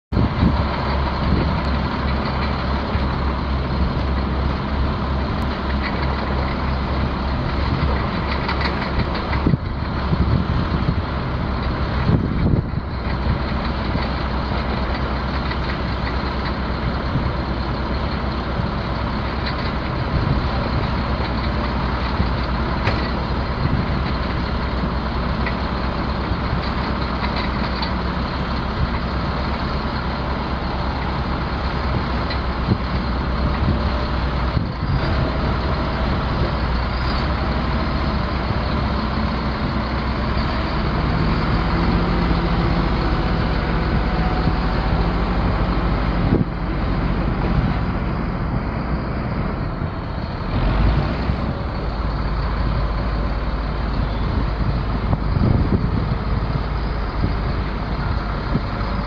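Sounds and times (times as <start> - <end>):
diesel engine idling: 0.1 - 59.0.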